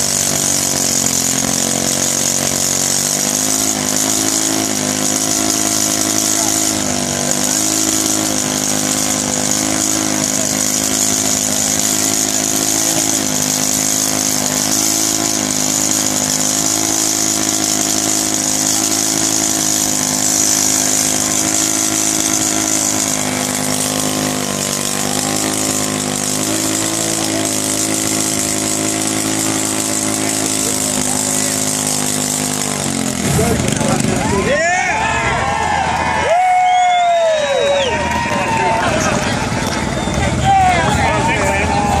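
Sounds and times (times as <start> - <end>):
go-kart engine at high revs: 0.0 - 42.0.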